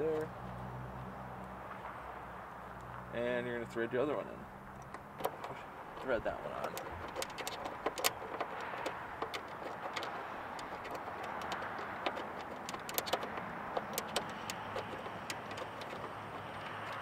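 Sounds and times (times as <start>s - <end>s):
small metal clicks and taps: 4.7s - 17.0s.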